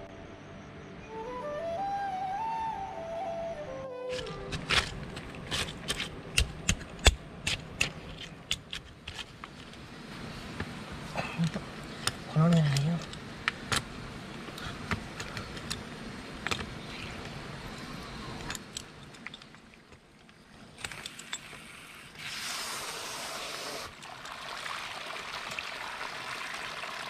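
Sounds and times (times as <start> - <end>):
water gushing from pipe: 22.2 - 27.0.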